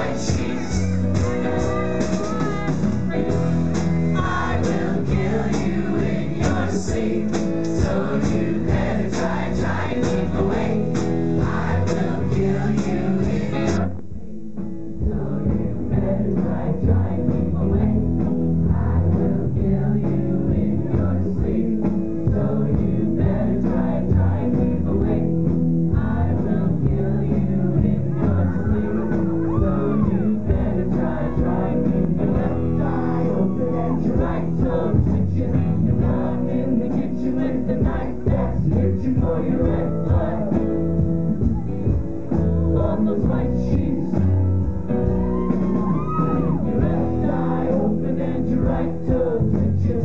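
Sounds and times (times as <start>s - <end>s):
person singing: 0.0s - 25.4s, 26.0s - 50.0s
bass guitar: 0.0s - 50.0s
drums: 0.0s - 50.0s
electric guitar: 0.0s - 50.0s.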